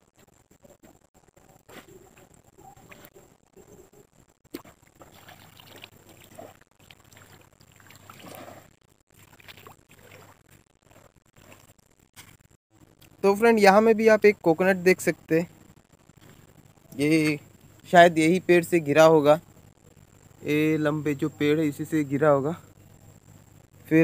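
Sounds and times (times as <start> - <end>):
shallow water splashing: 4.5 - 11.8.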